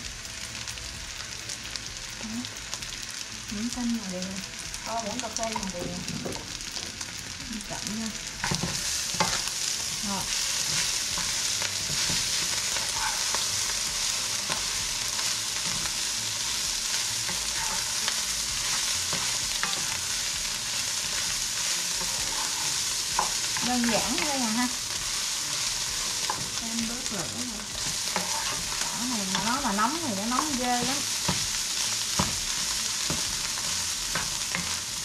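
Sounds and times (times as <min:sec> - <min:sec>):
food sizzling in a hot pan: 0:00.0 - 0:35.0
utensil scraping a pan: 0:10.2 - 0:16.0, 0:17.2 - 0:34.8.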